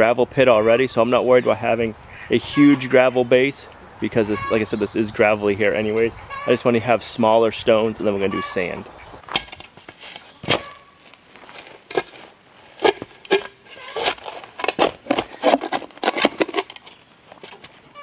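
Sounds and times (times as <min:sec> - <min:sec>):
shovel scraping gravelly soil: 0:09.6 - 0:17.7.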